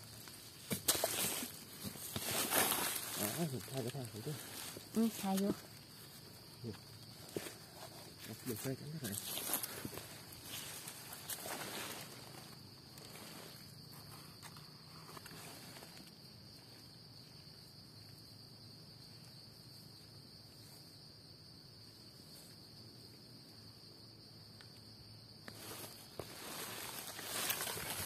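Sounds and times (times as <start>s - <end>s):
insects droning: 0.0s - 28.0s
footsteps on dry leaves: 0.8s - 3.7s, 25.6s - 28.0s.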